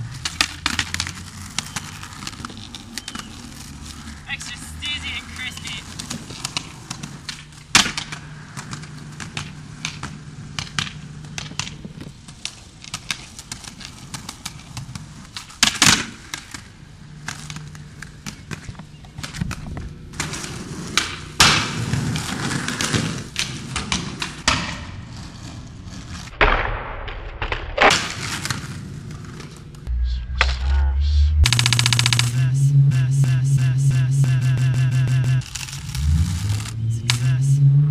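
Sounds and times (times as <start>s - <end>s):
skateboard slaps and clacks: 0.0s - 3.7s, 5.8s - 29.6s
skateboard wheels rolling on concrete: 0.0s - 29.9s, 35.4s - 36.8s.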